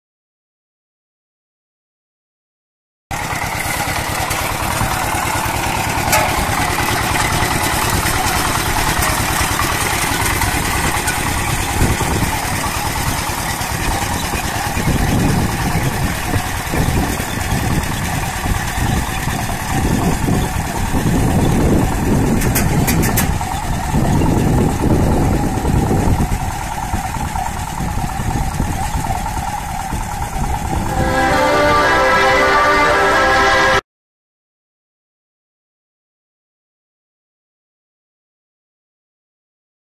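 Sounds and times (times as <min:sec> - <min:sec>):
walk-behind tractor engine running: 0:03.1 - 0:33.7.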